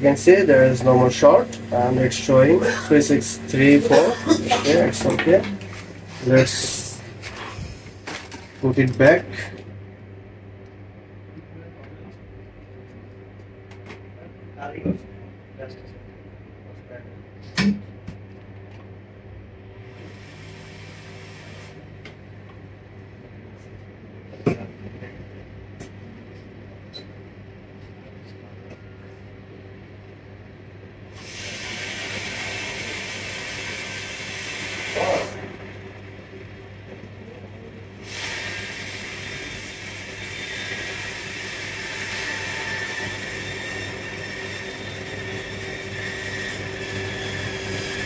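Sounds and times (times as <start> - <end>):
low steady hum: 0.0 - 20.8
hot air gun blowing: 0.4 - 8.1, 31.2 - 35.4, 38.0 - 40.0.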